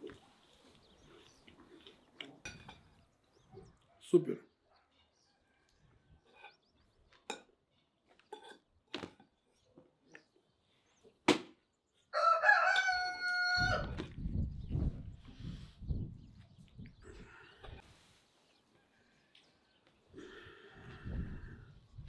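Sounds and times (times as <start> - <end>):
rooster crowing: 12.1 - 14.0.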